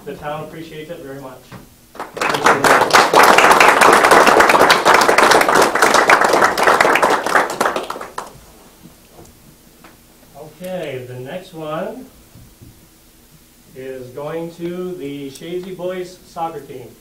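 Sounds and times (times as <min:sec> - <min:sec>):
small audience applauding: 0:01.9 - 0:08.4.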